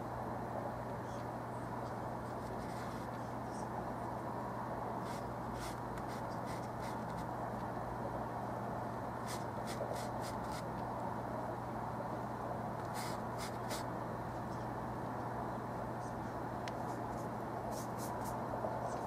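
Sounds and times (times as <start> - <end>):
background hum and hiss: 0.0 - 19.0
paintbrush scratching on canvas: 2.3 - 3.2, 5.0 - 7.3, 9.2 - 10.7, 12.8 - 13.9, 16.8 - 18.4.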